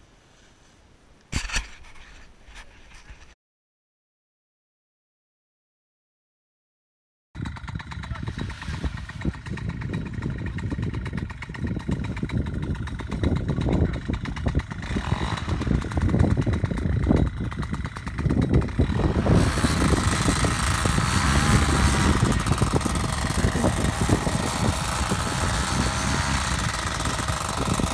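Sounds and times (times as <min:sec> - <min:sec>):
paramotor engine and propeller: 0:07.4 - 0:27.9
wind rumble on microphone: 0:07.4 - 0:27.9.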